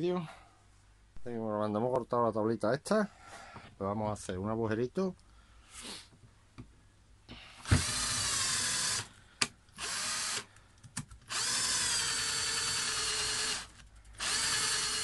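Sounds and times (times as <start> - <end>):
cordless drill whining into wood: 7.6 - 9.1, 9.8 - 10.5, 11.3 - 15.0.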